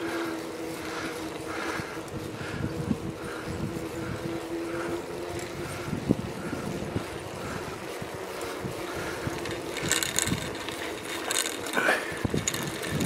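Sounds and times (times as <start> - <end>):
bicycle tyre noise: 0.0 - 13.0
wind on microphone: 1.7 - 10.7, 12.1 - 13.0
bike knocks and rattles: 8.9 - 13.0.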